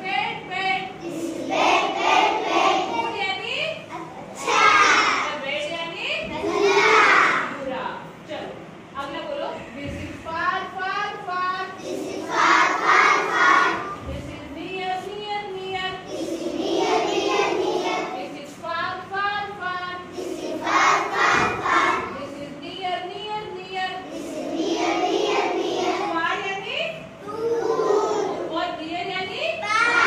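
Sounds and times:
children chanting in unison: 1.0 - 3.1, 4.3 - 5.3, 6.4 - 7.5, 11.8 - 14.0, 16.1 - 18.2, 20.1 - 22.2, 24.1 - 26.1, 27.3 - 28.4.

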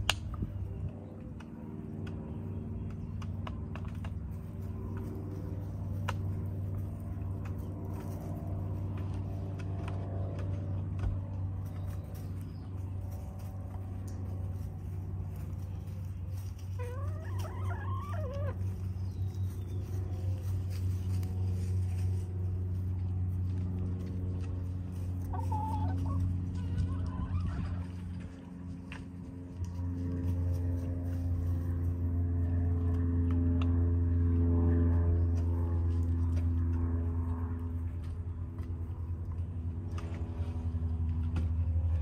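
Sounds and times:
steady low hum: 0.0 - 42.0
hens scratching in straw: 3.8 - 10.0, 11.6 - 32.6
hen calling: 16.8 - 18.6, 25.2 - 27.8.

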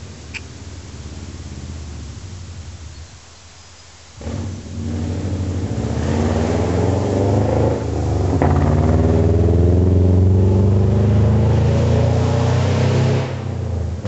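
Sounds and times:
car accelerating past: 4.2 - 14.0.

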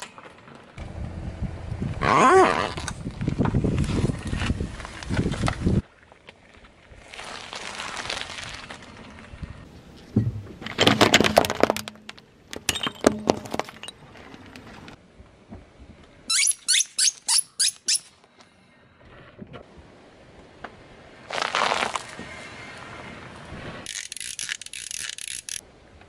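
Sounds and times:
crunching under car tyre: 2.4 - 12.1, 21.3 - 22.4
rubber ducks squeaking: 16.3 - 18.1.

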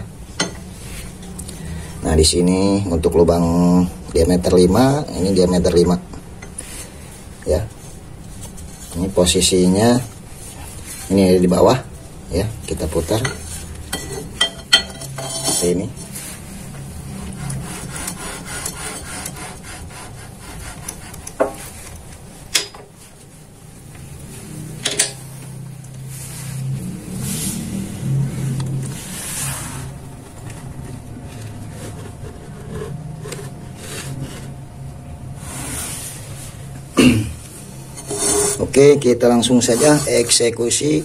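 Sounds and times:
steady low hum: 0.0 - 41.0
metal scraping and rubbing: 6.6 - 11.4, 12.5 - 22.0, 26.0 - 34.8, 37.8 - 41.0.

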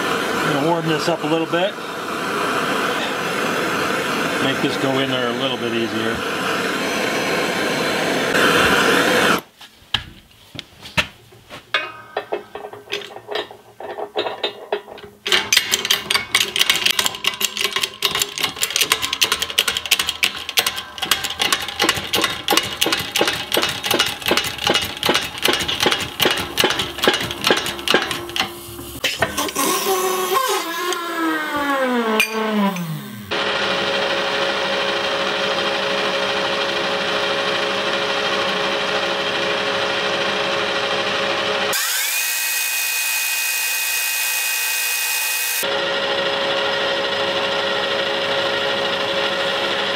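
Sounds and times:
machine motor winding down: 0.0 - 9.4, 15.3 - 49.9
clicks and knocks: 9.9 - 29.6
metal lathe humming: 11.8 - 49.9.

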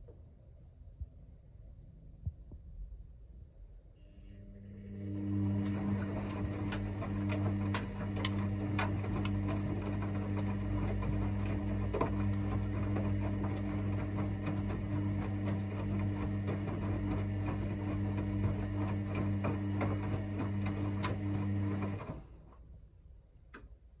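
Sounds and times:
washing machine drum motor humming: 4.3 - 22.4
clicks and knocks of tumbling laundry: 5.2 - 22.6.

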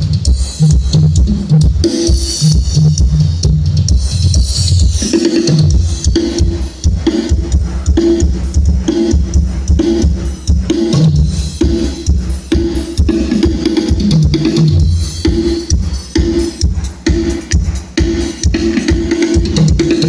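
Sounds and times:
heavy kick drum: 0.0 - 20.0
loud music with drum beat: 0.0 - 20.0
deep bass: 2.5 - 12.3.

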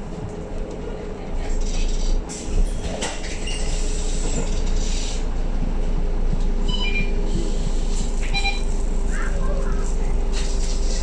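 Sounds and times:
bus road and drivetrain rumble: 0.0 - 11.0.

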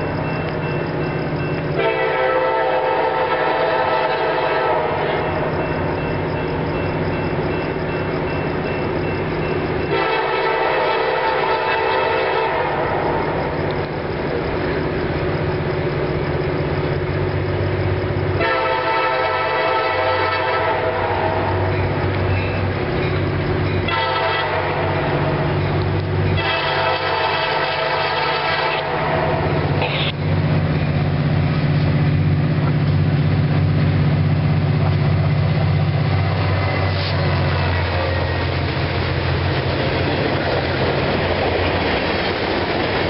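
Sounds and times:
locomotive air horn: 1.8 - 5.3, 9.9 - 13.3, 18.4 - 21.7, 23.9 - 25.4, 26.4 - 30.2, 36.4 - 38.5.

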